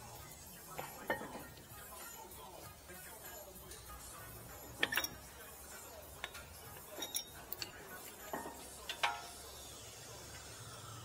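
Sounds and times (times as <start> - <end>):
metal tools clicking and knocking: 0.7 - 1.8, 4.6 - 9.5.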